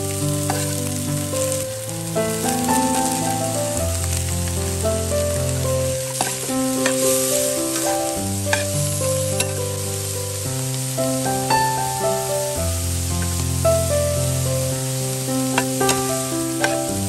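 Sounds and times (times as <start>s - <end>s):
food sizzling in a pan: 0.0s - 17.0s
soft background music: 0.0s - 17.0s
metal spoon scraping a pan: 0.5s - 0.8s, 6.2s - 7.9s, 9.4s - 9.6s, 15.5s - 16.9s.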